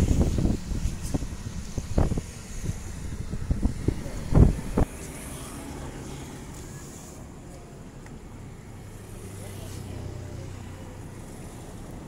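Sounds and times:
wind buffeting microphone: 0.0s - 5.0s
low outdoor rumble: 0.0s - 12.0s.

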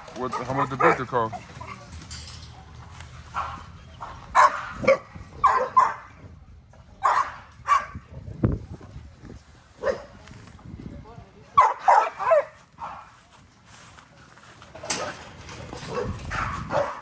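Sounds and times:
dogs barking: 0.2s - 1.7s, 3.3s - 6.2s, 7.0s - 8.0s, 9.8s - 10.2s, 11.6s - 13.2s, 15.8s - 17.0s.

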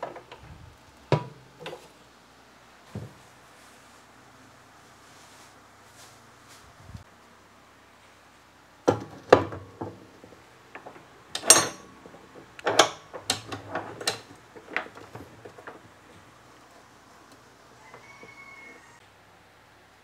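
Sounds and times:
knocks and metallic clicks: 8.9s - 16.2s.

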